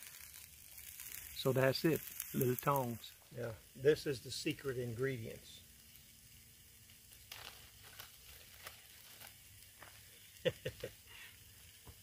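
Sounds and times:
plastic bottle crinkling: 7.0s - 10.4s.

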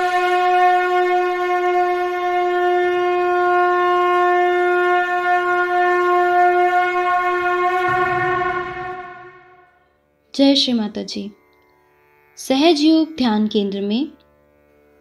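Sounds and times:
conch shell blown: 0.0s - 9.9s.

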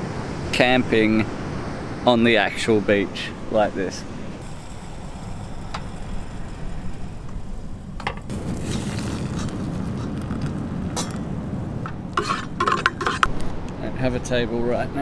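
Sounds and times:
gas stove burning: 4.4s - 10.5s.

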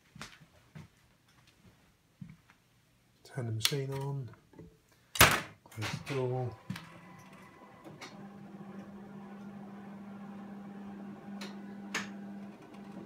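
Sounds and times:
copier clicks: 6.0s - 9.6s, 11.0s - 13.0s
copier humming: 6.0s - 13.0s.

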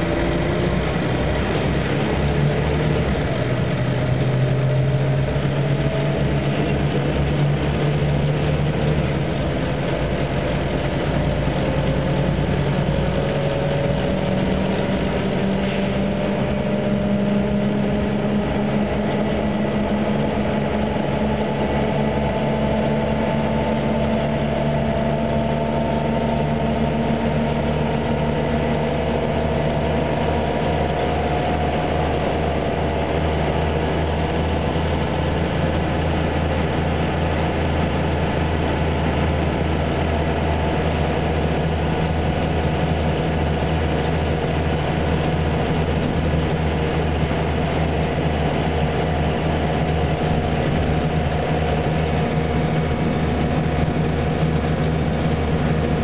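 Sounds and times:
bus engine droning with whine: 0.0s - 56.0s
road noise: 0.0s - 56.0s.

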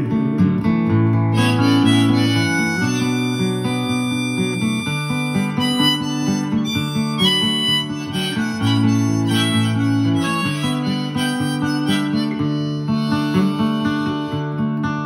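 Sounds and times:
strummed acoustic guitar: 0.0s - 15.0s
harmonica playing: 1.3s - 14.8s.

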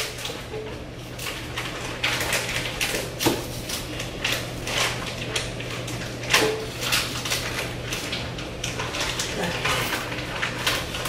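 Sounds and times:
dishes clattering in a sink: 6.2s - 11.0s.

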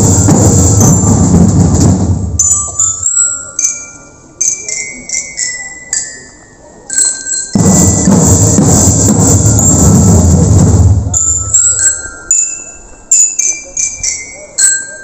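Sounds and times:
loud rushing noise: 0.0s - 2.8s, 7.6s - 11.6s
bell-like struck metal notes: 11.1s - 15.0s.

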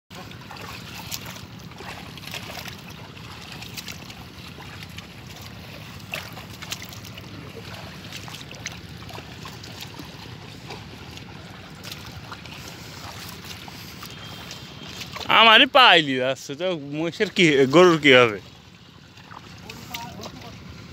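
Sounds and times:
wooden plough dragging through mud: 0.1s - 16.0s
hooves splashing in mud: 0.1s - 20.9s.

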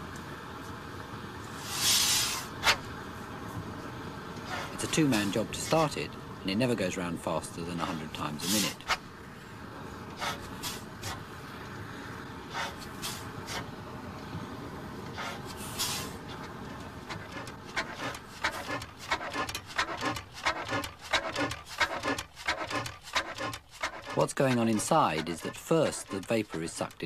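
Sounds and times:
old engine turning slowly: 16.2s - 27.0s
engine clicks and knocks: 17.1s - 27.0s.

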